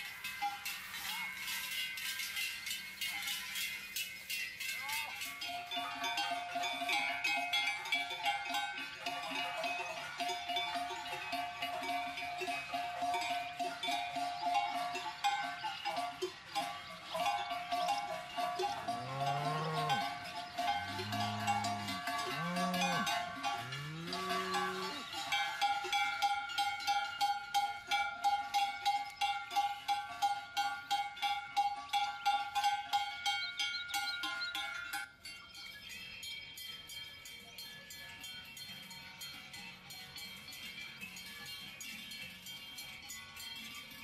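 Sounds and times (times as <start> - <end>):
cowbells clanging: 0.0 - 44.0
cow mooing: 18.9 - 20.1, 20.8 - 25.1.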